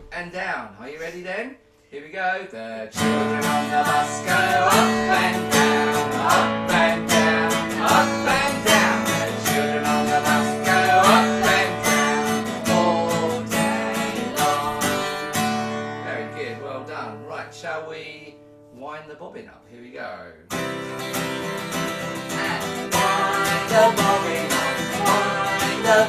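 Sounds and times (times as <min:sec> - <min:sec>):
man and woman singing: 0:02.3 - 0:16.8, 0:22.1 - 0:26.0
acoustic guitar strumming: 0:02.9 - 0:18.9, 0:20.5 - 0:26.0.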